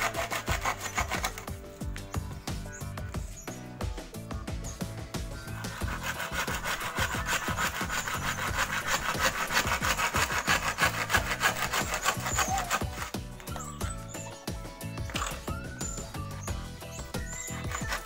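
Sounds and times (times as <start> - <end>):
hand saw cutting bamboo: 0.0 - 2.0, 5.3 - 14.2, 16.8 - 18.0.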